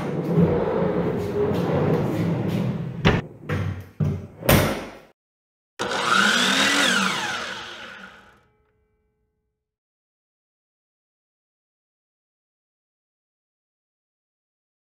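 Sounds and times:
drawer rolling on tracks: 0.0s - 3.3s.

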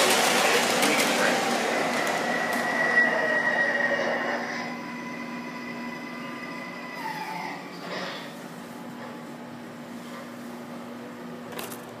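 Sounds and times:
model train squeal: 2.1s - 8.2s.

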